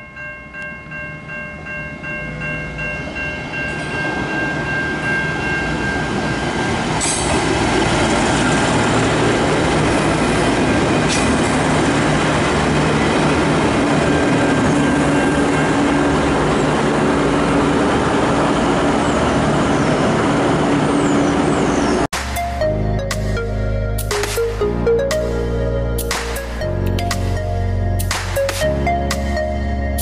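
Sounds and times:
train wheels on rail: 1.5s - 22.1s
diesel engine drone: 6.4s - 30.0s.

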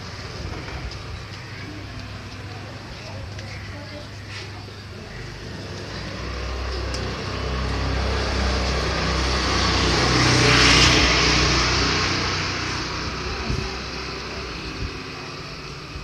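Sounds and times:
vehicle passing by: 5.4s - 16.0s.

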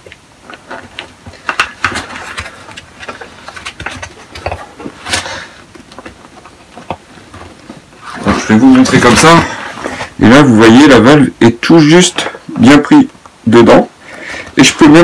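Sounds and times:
plastic mattress crinkling: 0.0s - 10.6s.

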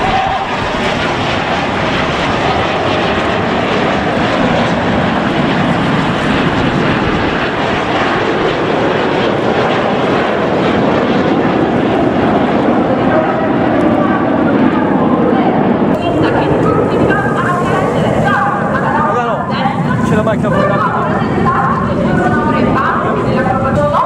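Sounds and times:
jet noise rushing: 0.0s - 24.0s.

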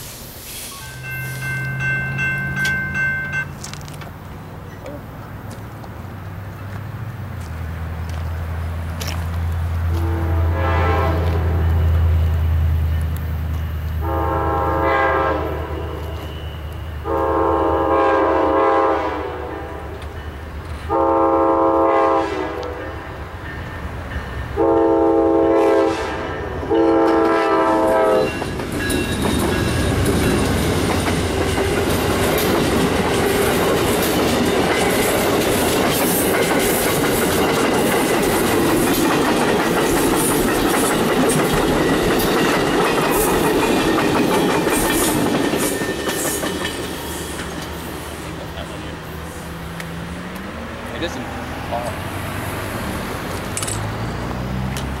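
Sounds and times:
locomotive horn blasts: 9.9s - 12.1s, 14.0s - 20.0s, 20.9s - 23.0s, 24.6s - 28.4s
train wheels clattering on rails: 26.8s - 48.9s.

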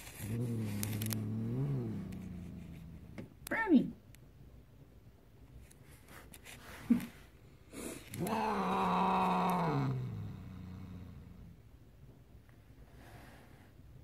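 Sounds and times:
cat yowling: 8.2s - 10.1s.

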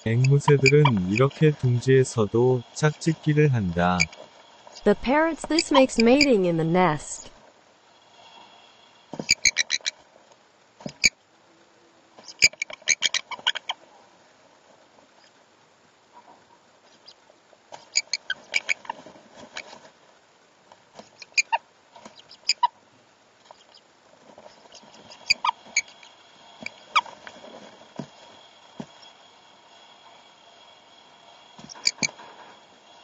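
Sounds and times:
parrots squeaky chirps: 9.3s - 9.9s, 31.6s - 32.2s.

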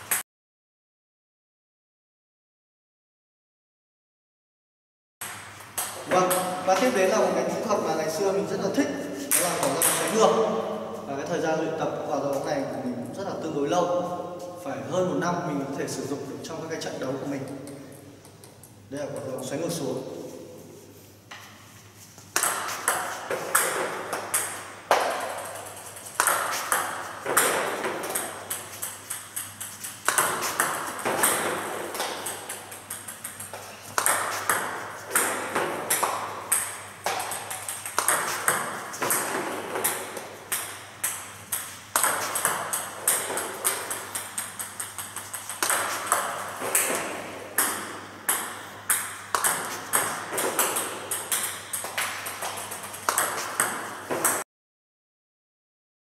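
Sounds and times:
ball bouncing on table: 5.2s - 7.2s, 9.3s - 10.4s, 22.4s - 54.4s
paddle striking ball: 22.3s - 54.4s.

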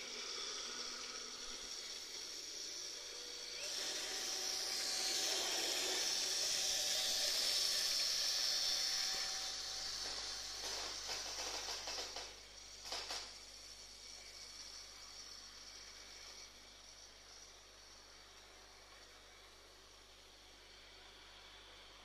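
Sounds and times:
model train motor whirring: 0.0s - 22.0s
rapid small clicks: 10.0s - 14.2s.

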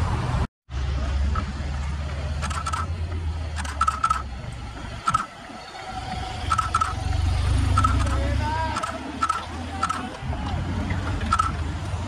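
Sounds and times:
motorcycle approaching: 0.7s - 12.0s
sharp clacks: 2.4s - 2.9s, 3.6s - 4.2s, 5.0s - 5.3s, 6.5s - 7.0s, 7.7s - 11.6s.

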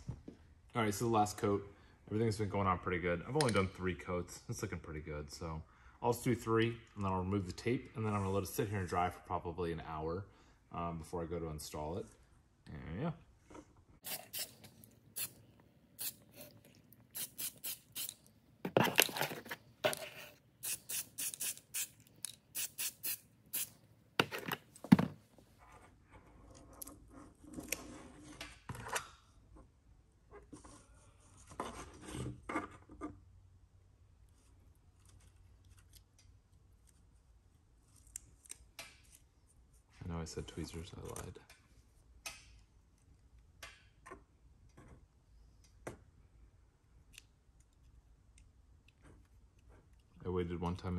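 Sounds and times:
aerosol can spraying: 14.0s - 15.4s, 16.0s - 16.5s, 17.1s - 18.2s, 20.6s - 23.8s
masking tape peeling: 16.0s - 18.3s, 20.6s - 23.8s.

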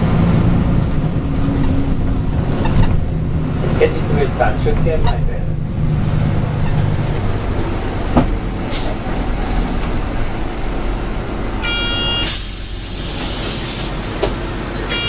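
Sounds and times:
bus engine and road noise: 0.0s - 15.0s
air brakes hissing: 8.7s - 9.0s, 12.0s - 14.2s
short electronic tone: 11.6s - 12.3s.

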